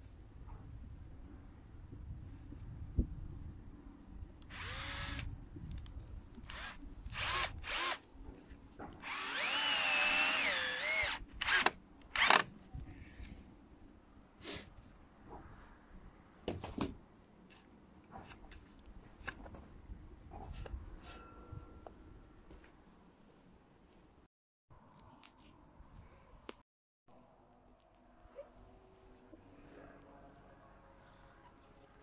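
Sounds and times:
cordless drill whining into wood: 0:04.5 - 0:05.3, 0:06.4 - 0:08.0, 0:09.0 - 0:12.5.

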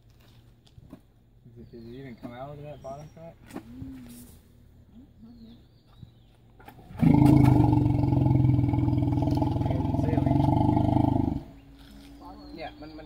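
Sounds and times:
elephant roaring: 0:06.9 - 0:11.6.

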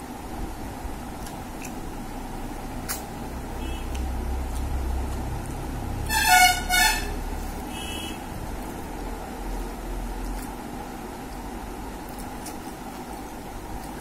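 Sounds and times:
road traffic rumble: 0:00.0 - 0:14.0
vehicle horn toots: 0:03.6 - 0:03.9, 0:06.0 - 0:08.3.

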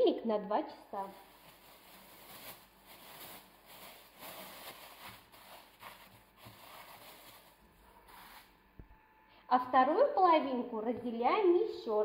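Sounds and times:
thin plastic bag crinkling: 0:01.0 - 0:08.5.

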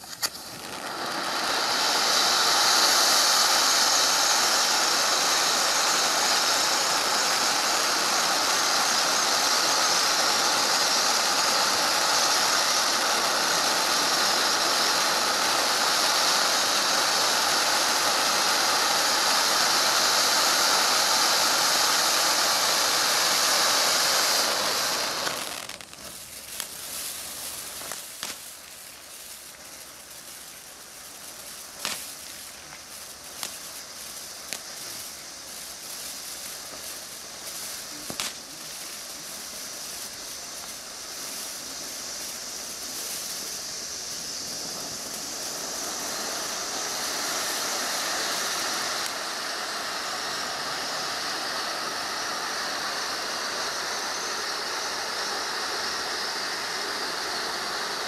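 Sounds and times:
crackling with pops: 0:00.0 - 0:01.3, 0:25.0 - 0:49.3
firework fountain hissing: 0:00.0 - 0:58.0.

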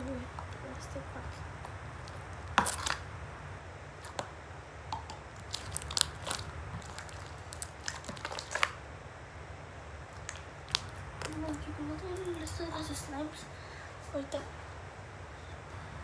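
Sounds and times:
steady low hum: 0:00.0 - 0:16.0
slime squeezed in plastic bag: 0:05.3 - 0:08.8.

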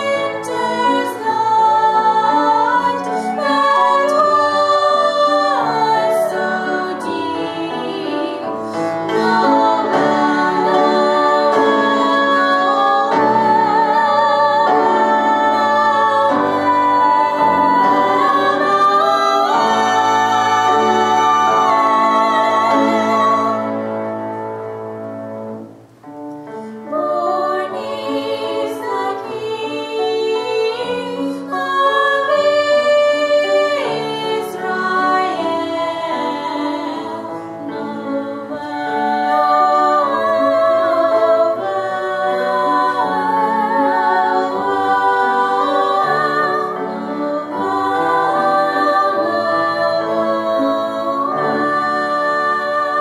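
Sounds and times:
women singing a duet: 0:00.0 - 0:24.1, 0:26.8 - 0:53.0
flute: 0:00.0 - 0:25.8, 0:36.1 - 0:53.0
grand piano: 0:00.0 - 0:53.0.

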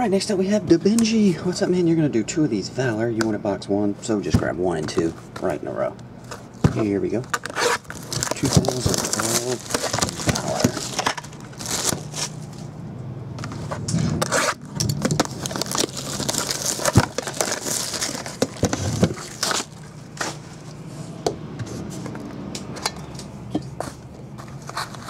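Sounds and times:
plastic wrapping crinkling: 0:06.4 - 0:12.5, 0:14.2 - 0:20.6.

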